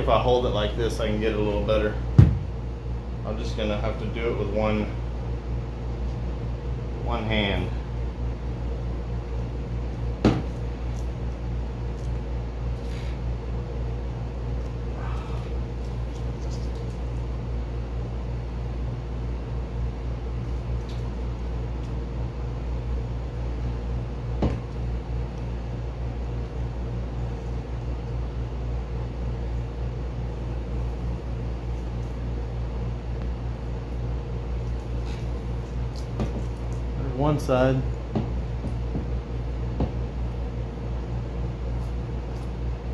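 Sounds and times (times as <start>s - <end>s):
machine hum: 0.0s - 42.9s
masking tape peeling crackles: 15.6s - 17.3s.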